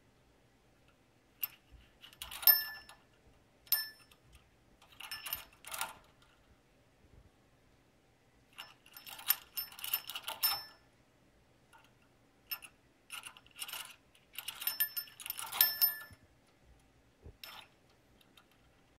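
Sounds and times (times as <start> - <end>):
small metal bell jingling: 2.2 - 3.0, 3.7 - 4.2, 8.6 - 10.8, 13.8 - 16.2.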